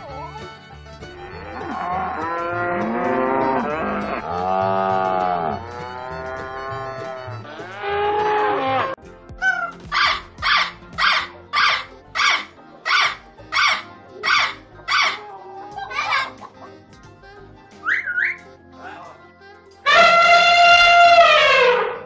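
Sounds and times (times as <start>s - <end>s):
cattle mooing: 1.3s - 9.0s.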